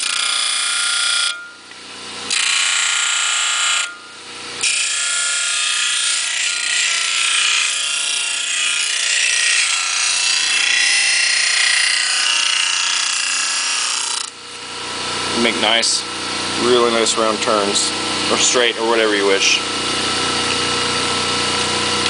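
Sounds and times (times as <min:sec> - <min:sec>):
motor whine: 0:08.8 - 0:22.0.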